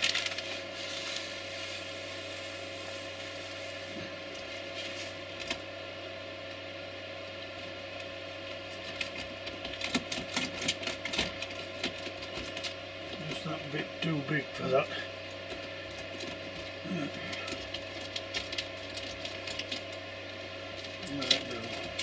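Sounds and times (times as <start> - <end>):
ballast rattling from plastic bag: 0.0 - 0.5
steady background hum: 0.0 - 22.0.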